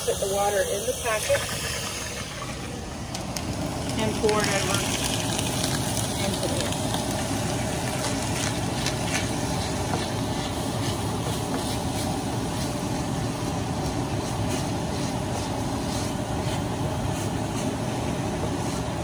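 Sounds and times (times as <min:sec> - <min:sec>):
kitchen tap running: 0:00.0 - 0:11.6
meat sizzling in a skillet: 0:03.6 - 0:13.4.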